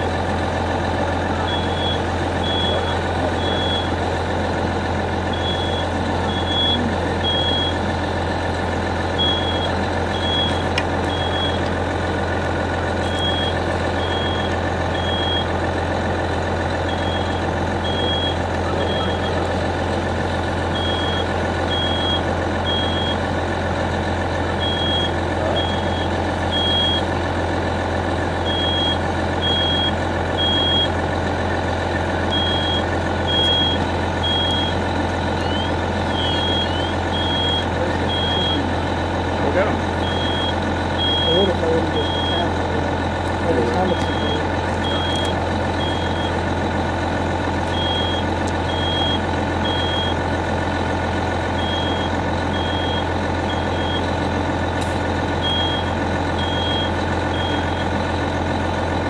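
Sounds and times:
low engine drone: 0.0s - 59.0s
smoke alarm beeping: 5.4s - 7.8s, 9.2s - 11.6s, 13.1s - 15.5s, 32.3s - 34.8s, 35.4s - 38.7s, 40.0s - 42.5s, 43.9s - 46.4s, 47.7s - 50.2s, 51.6s - 54.1s, 55.4s - 57.9s.

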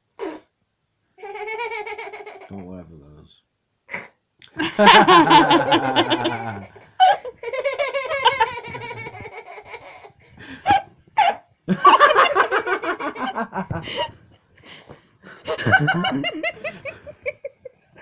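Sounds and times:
toddler laughing: 1.2s - 2.6s, 5.4s - 11.3s.

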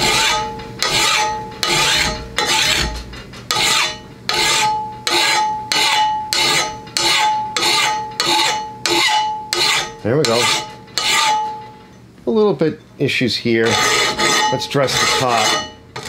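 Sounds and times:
file rasping on steel blade: 0.0s - 11.6s, 13.6s - 16.0s
blade ringing: 13.8s - 15.8s.

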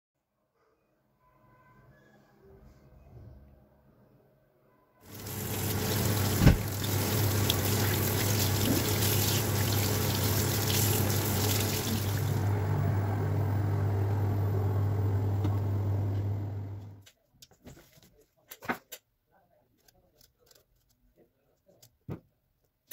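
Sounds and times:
tap water running into sink: 5.1s - 12.5s.

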